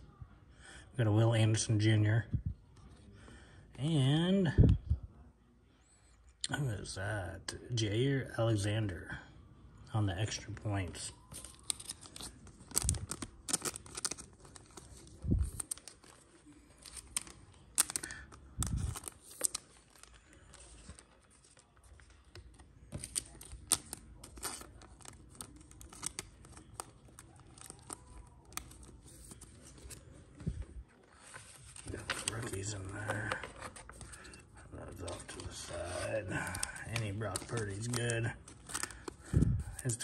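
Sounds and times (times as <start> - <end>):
wrapper tearing and crinkling: 11.2 - 30.1, 34.9 - 39.2.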